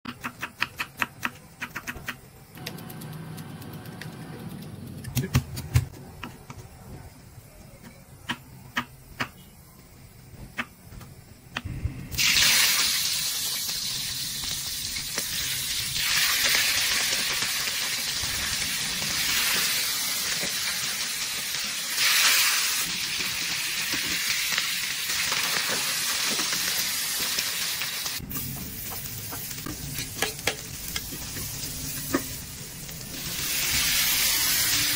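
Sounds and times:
fish sizzling in hot oil: 0:12.1 - 0:34.9.

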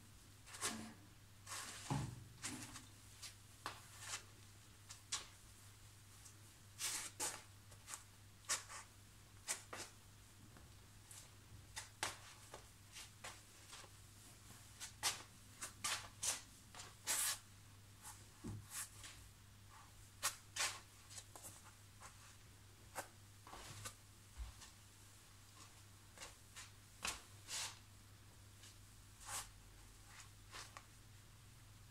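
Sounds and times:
slippers scuffing on tile floor: 0:14.8 - 0:17.4, 0:19.8 - 0:22.3, 0:25.6 - 0:27.8.

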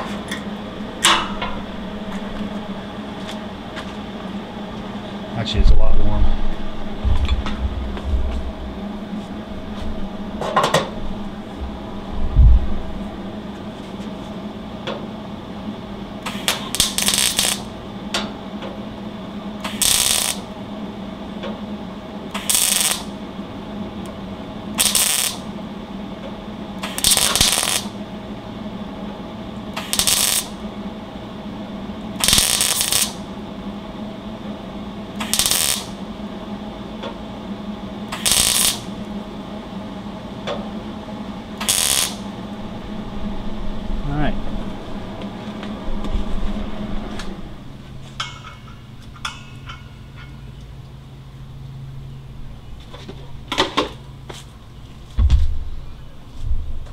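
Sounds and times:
steady low hum: 0:00.0 - 0:56.9
welder crackling: 0:16.2 - 0:17.8, 0:19.6 - 0:20.6, 0:22.3 - 0:23.2, 0:24.0 - 0:25.5, 0:26.8 - 0:28.1, 0:29.7 - 0:30.7, 0:32.0 - 0:33.3, 0:35.1 - 0:36.0, 0:38.0 - 0:39.1, 0:41.5 - 0:43.4.

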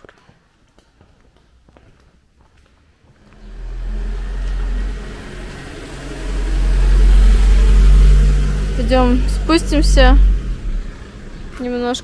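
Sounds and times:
car engine rumbling: 0:03.1 - 0:12.0.

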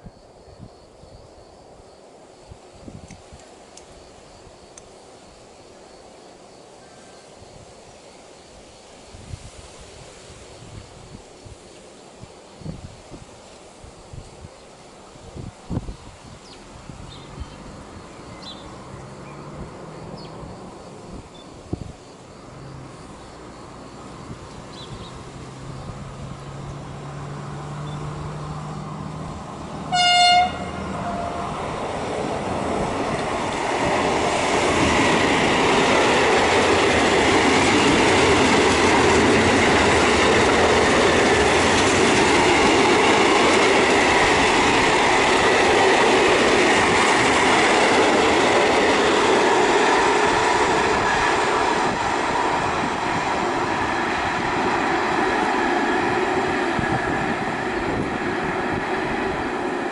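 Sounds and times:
train wheels rumbling on rail: 0:09.2 - 0:59.9
locomotive horn blast: 0:29.8 - 0:31.6.

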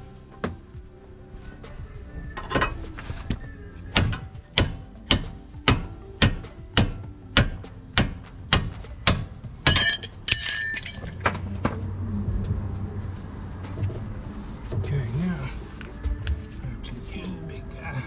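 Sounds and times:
sledgehammer striking steel: 0:04.0 - 0:11.4
metallic ringing: 0:09.6 - 0:11.6.

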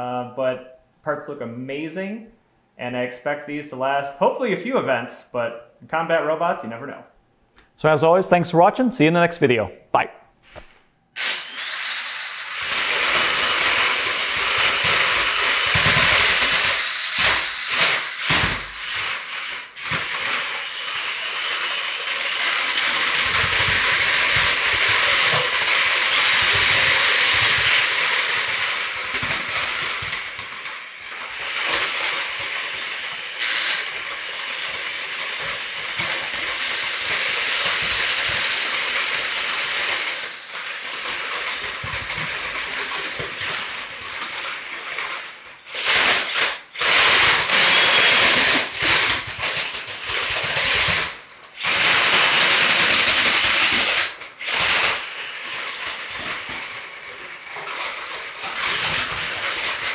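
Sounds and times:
plastic feet scraping on concrete: 0:10.4 - 0:10.9, 0:33.4 - 0:38.8
gears whirring: 0:11.2 - 0:59.9.

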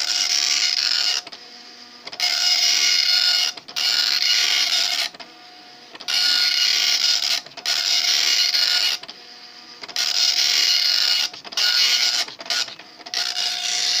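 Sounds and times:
dot-matrix printer rasping buzz: 0:00.0 - 0:14.0.

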